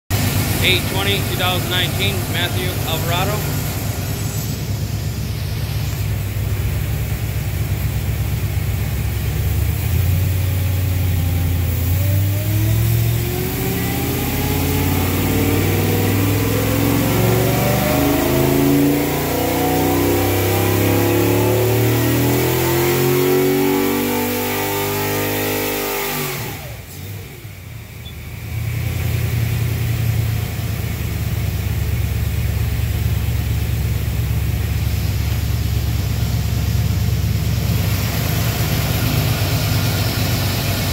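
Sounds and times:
engine idling: 0:00.1 - 0:17.3, 0:26.8 - 0:40.9
engine revving under load: 0:00.1 - 0:32.1, 0:32.8 - 0:40.9.

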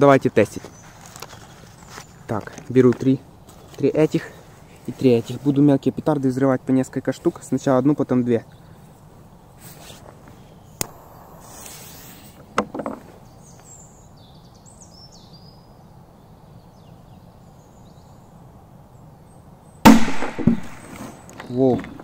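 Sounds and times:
firecracker fuse hiss: 0:10.8 - 0:12.6.

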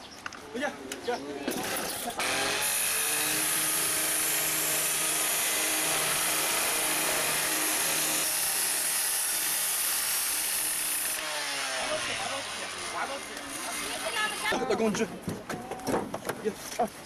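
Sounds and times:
power saw cutting metal: 0:01.5 - 0:14.6.

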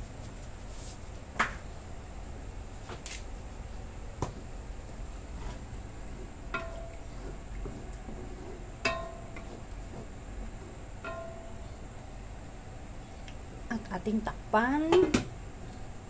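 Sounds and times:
spatula stirring in a wok: 0:05.2 - 0:11.6
spatula knocking on metal pan: 0:06.5 - 0:07.1, 0:08.8 - 0:09.7, 0:11.0 - 0:11.6.

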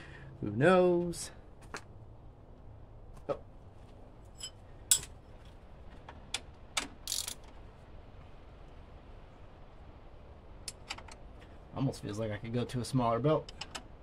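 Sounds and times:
wrench clicking on metal: 0:06.8 - 0:07.5.

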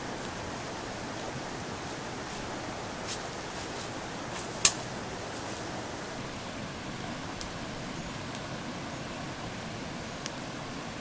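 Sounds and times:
steady outdoor hiss: 0:00.0 - 0:11.0
sharp snap: 0:04.6 - 0:04.9.

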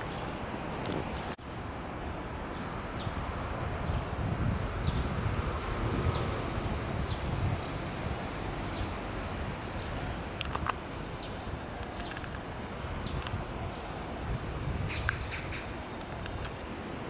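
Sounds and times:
small bird chirping: 0:08.7 - 0:16.6.

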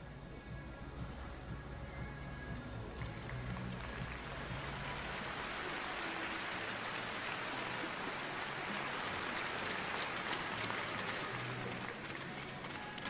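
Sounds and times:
crowd applauding: 0:02.6 - 0:13.0
individual hand claps: 0:02.8 - 0:13.0.

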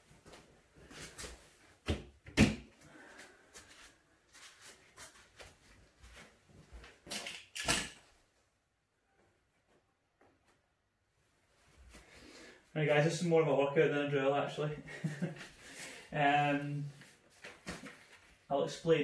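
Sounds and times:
soft footsteps on foam mats: 0:03.0 - 0:07.1.

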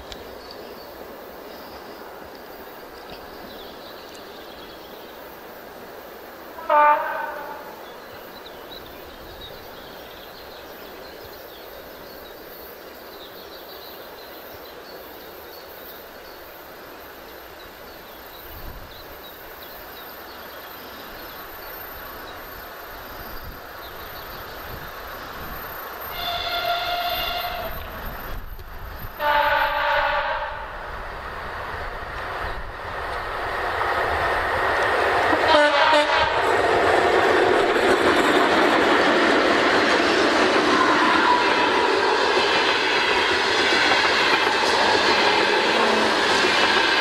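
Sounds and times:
train running on rails: 0:00.0 - 0:47.0
train horn blast: 0:06.6 - 0:07.7, 0:26.1 - 0:27.9, 0:29.2 - 0:30.7, 0:35.4 - 0:36.4.

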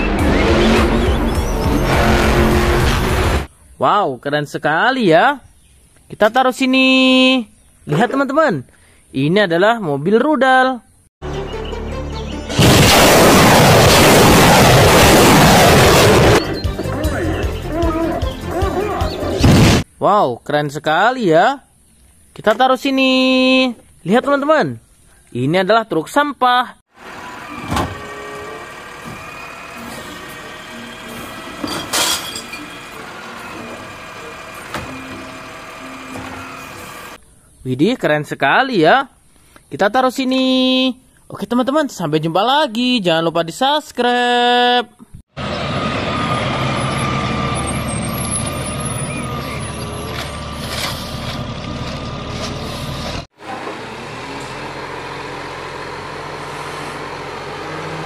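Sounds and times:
garbage truck running: 0:13.7 - 0:19.5, 0:27.0 - 0:37.2, 0:45.4 - 0:58.0
hydraulic arm whining: 0:27.0 - 0:37.2
sharp metallic clanks: 0:31.6 - 0:32.8.

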